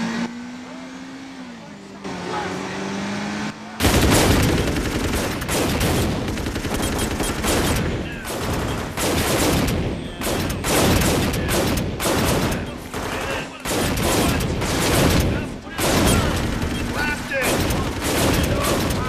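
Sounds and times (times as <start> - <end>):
rapid gunfire: 3.8 - 19.0.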